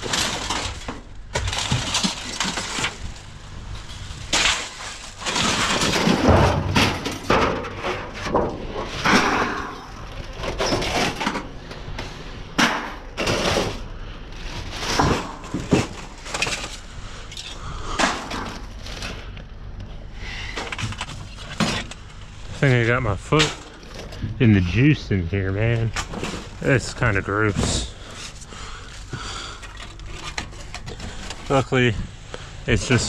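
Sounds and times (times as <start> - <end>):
sheet metal clattering and scraping: 4.3 - 11.9.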